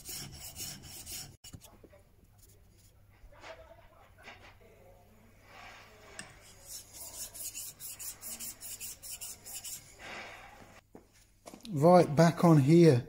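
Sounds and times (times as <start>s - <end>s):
chisel scraping on a waterstone: 0.0s - 1.7s, 6.0s - 10.4s.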